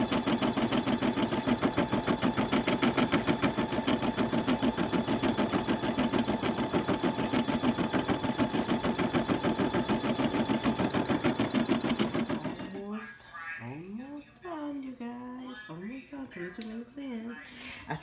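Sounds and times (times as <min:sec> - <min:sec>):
embroidery machine stitching: 0:00.0 - 0:12.9.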